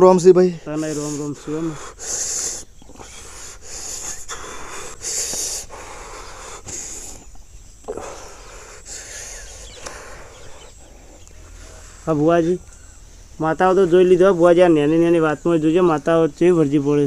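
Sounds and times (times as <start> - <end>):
person breathing heavily: 0.5 - 13.4.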